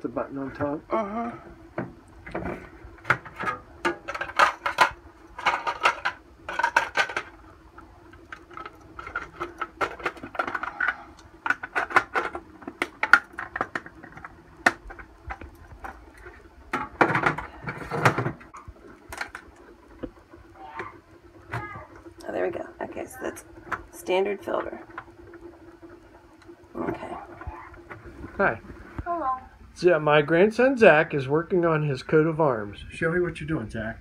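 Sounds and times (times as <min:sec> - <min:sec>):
faint steady hum: 0:00.0 - 0:34.0
plastic pitcher parts clattering: 0:02.3 - 0:07.3, 0:08.4 - 0:19.5.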